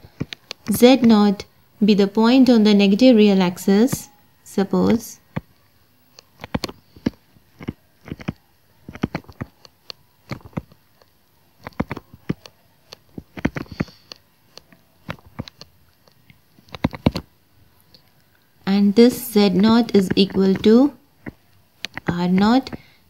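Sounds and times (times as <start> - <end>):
stylus tapping on tablet screen: 19.0 - 23.0.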